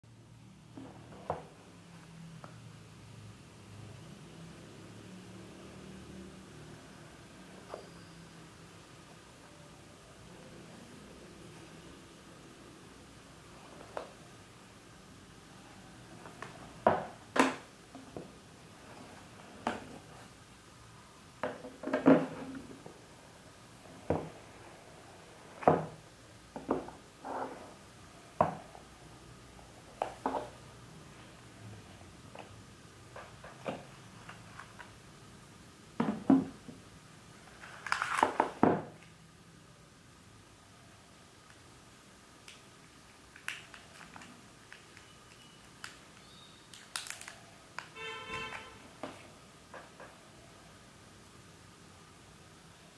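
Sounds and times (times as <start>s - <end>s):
short squeak: 7.8s - 8.3s
plastic wrapping crinkling: 37.6s - 38.6s, 43.3s - 47.9s.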